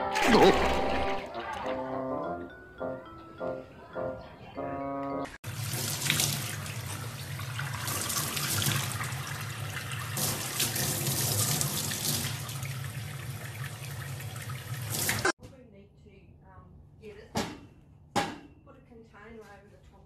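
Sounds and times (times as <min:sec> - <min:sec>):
faucet water splashing into sink: 0:00.0 - 0:01.8, 0:05.4 - 0:15.4.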